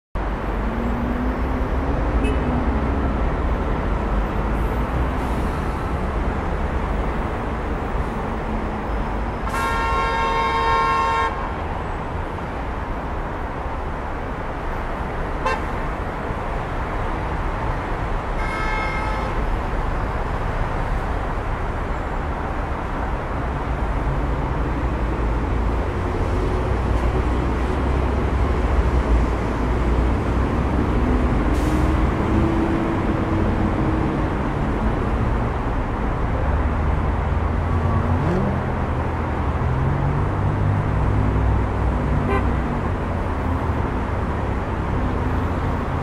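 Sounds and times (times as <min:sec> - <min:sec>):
city street traffic: 0:00.1 - 0:46.0
car horn honking: 0:09.5 - 0:11.5, 0:15.4 - 0:15.7, 0:18.4 - 0:19.4, 0:42.3 - 0:42.6.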